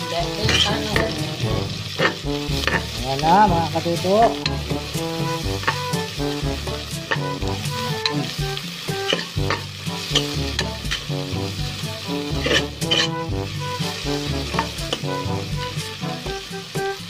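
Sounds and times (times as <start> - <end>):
background music with bass line: 0.0 - 17.0
onions and garlic sizzling in oil: 0.0 - 17.0
spatula scraping a pot: 0.4 - 3.0, 4.3 - 11.1, 12.2 - 15.1.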